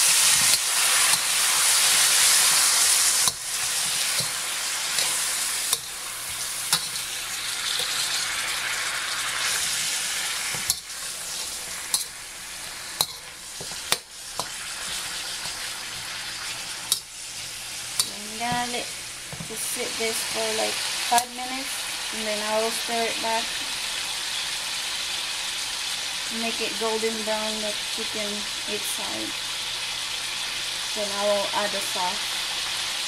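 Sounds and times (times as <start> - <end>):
metal spatula clacking and scraping: 0.0 - 8.2, 10.5 - 16.1
chicken sizzling in oil: 0.0 - 33.0.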